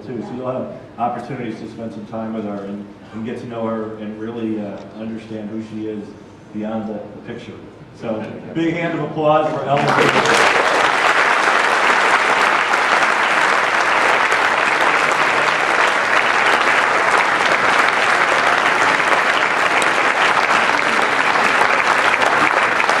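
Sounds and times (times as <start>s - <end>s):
audience applauding: 9.7s - 23.0s.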